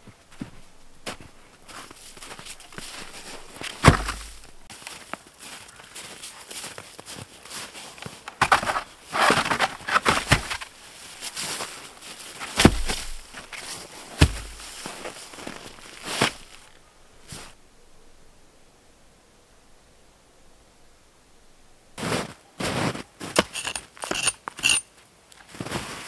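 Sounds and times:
footsteps crunching in snow: 0:00.0 - 0:17.6, 0:22.0 - 0:24.8, 0:25.4 - 0:26.0
heavy wooden thuds: 0:02.2 - 0:04.7, 0:12.6 - 0:13.5, 0:14.1 - 0:15.7.

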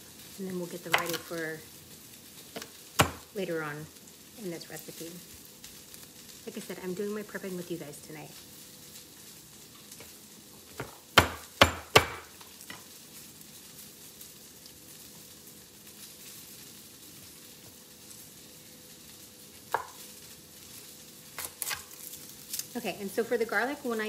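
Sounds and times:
vegetables sizzling in a pan: 0:00.0 - 0:24.0.

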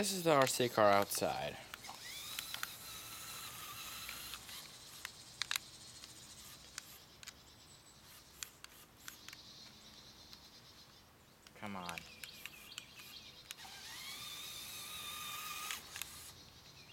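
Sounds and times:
toy car motor whine: 0:00.0 - 0:07.4, 0:08.0 - 0:09.4, 0:12.3 - 0:16.4
sharp clicks: 0:00.0 - 0:10.5, 0:11.4 - 0:16.4.

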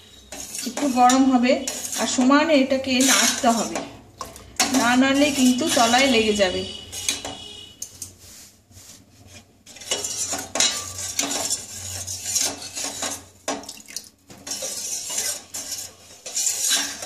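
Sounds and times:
spoon scraping a steel pot: 0:00.0 - 0:08.4, 0:09.2 - 0:13.6, 0:14.4 - 0:17.0.

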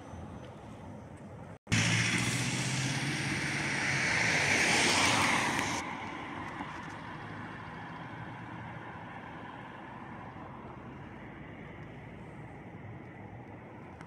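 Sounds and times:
car passing close by: 0:01.7 - 0:11.8.

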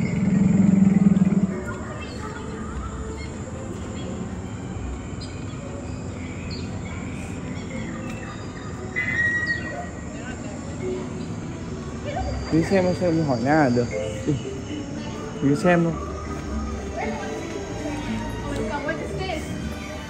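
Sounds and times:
low hum: 0:00.0 - 0:02.2
bird chirps and calls: 0:00.0 - 0:04.2, 0:05.2 - 0:18.2.

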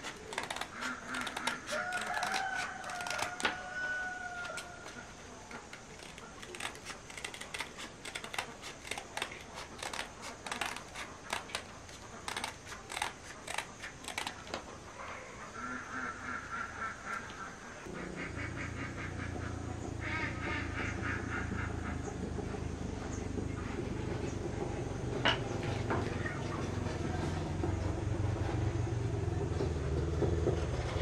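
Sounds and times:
rooster crowing: 0:01.7 - 0:05.1
ducks quacking: 0:15.4 - 0:22.5.

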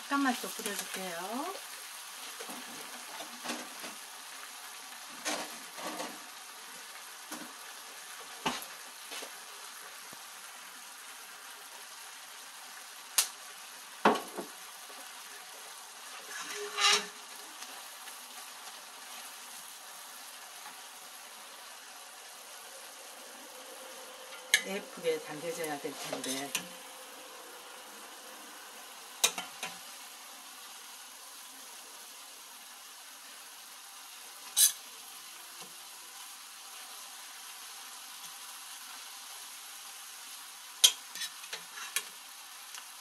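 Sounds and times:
food sizzling in a frying pan: 0:00.0 - 0:43.0
metal spatula knocking and scraping: 0:16.3 - 0:17.1.

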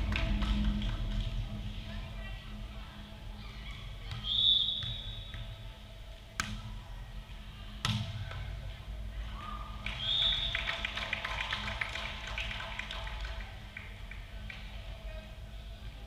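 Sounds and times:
referee's whistle: 0:04.2 - 0:05.3, 0:10.0 - 0:10.6.

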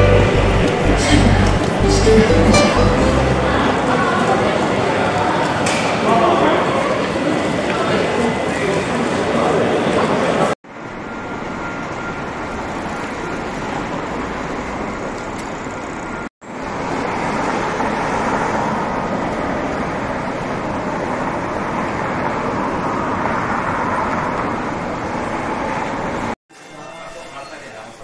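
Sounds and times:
road traffic noise: 0:00.0 - 0:06.1, 0:10.7 - 0:26.4.

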